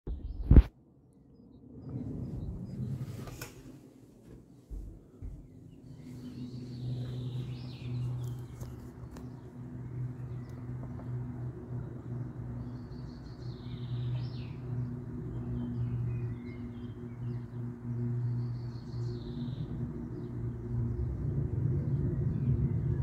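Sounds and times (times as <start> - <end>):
turboprop plane droning overhead: 0.2 - 23.0
birds chirping: 4.8 - 22.8.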